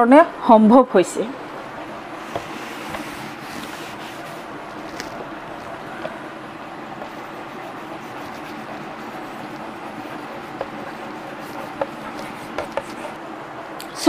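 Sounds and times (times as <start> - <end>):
steady background noise: 0.0 - 14.0
chalk tapping and scraping: 2.2 - 5.1, 7.0 - 13.2
duster wiping chalkboard: 2.2 - 5.2, 7.0 - 13.2.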